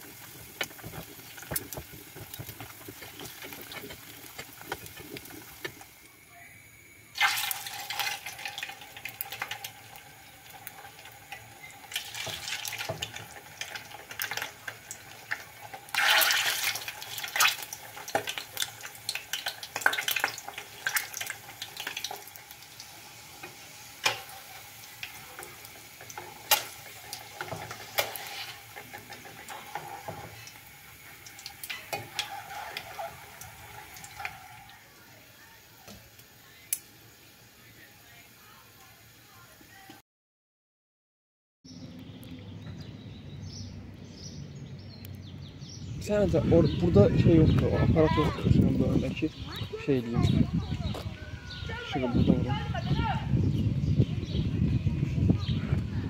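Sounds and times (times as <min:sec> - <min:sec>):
oil sizzling in frying pan: 0:00.0 - 0:39.9
sharp clicks and pops: 0:00.3 - 0:05.9.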